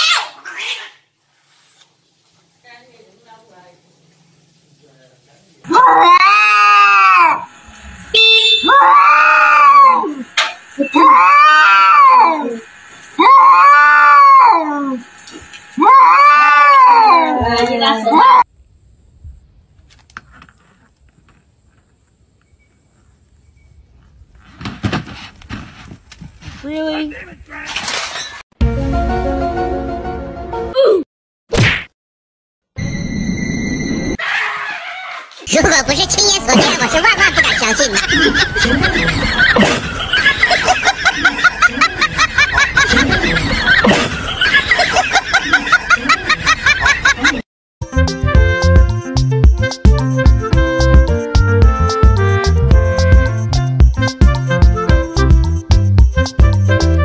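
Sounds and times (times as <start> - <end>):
high-pitched giggling: 35.6 - 47.4.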